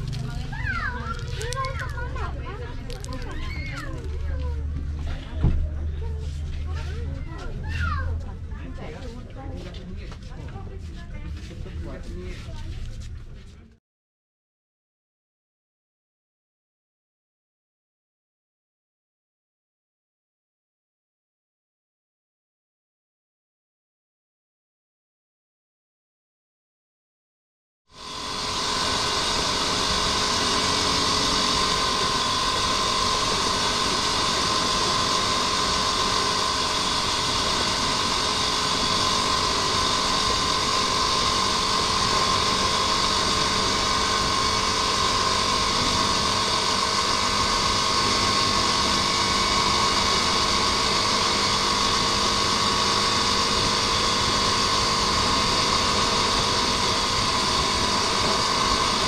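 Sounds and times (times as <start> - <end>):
motorcycle engine cruising: 0.0 - 7.5, 28.0 - 59.0.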